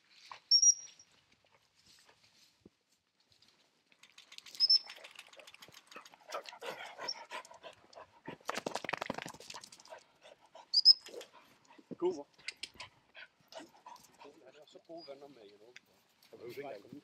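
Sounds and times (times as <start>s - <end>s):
dog breathing: 5.9s - 8.5s, 9.8s - 14.5s.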